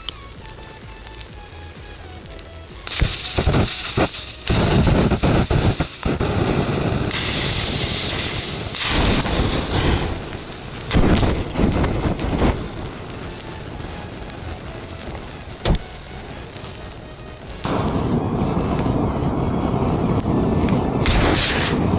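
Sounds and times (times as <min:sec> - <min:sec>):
sharp pops: 0:02.2 - 0:13.5, 0:15.0 - 0:16.2, 0:21.0 - 0:21.9
gas jets hissing: 0:02.8 - 0:19.3.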